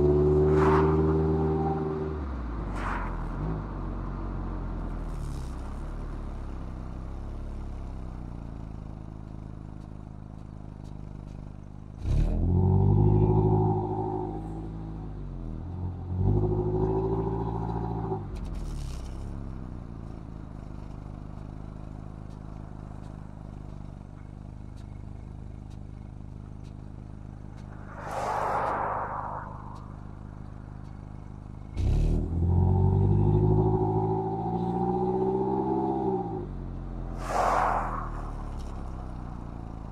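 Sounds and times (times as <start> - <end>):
short rushing noise: 0.4 - 1.4, 27.6 - 30.8, 37.1 - 39.0
car engine accelerating: 24.6 - 39.9.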